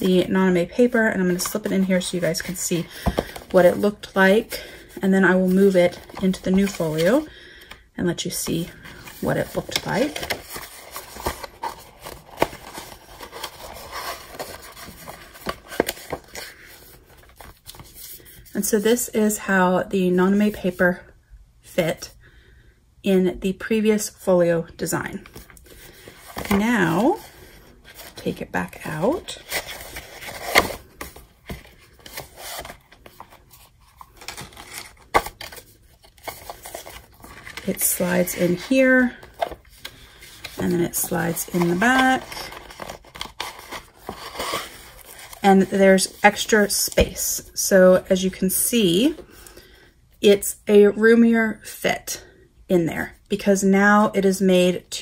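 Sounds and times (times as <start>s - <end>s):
notebook rustling and scuffing: 0.0s - 7.3s, 8.4s - 18.5s, 25.3s - 47.2s.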